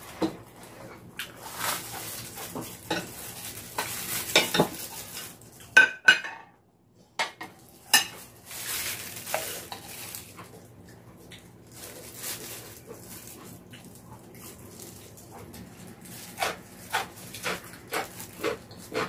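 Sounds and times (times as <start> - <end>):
food sizzling in a pan: 1.6 - 5.4
utensils clinking on dishes: 1.7 - 6.5, 7.2 - 10.3.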